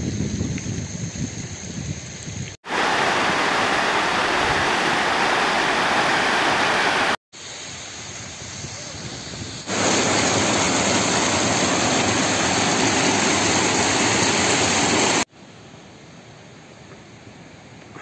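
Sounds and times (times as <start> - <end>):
faint steady hiss: 0.0 - 18.0
stream rushing over rocks: 2.6 - 7.2, 9.7 - 15.3.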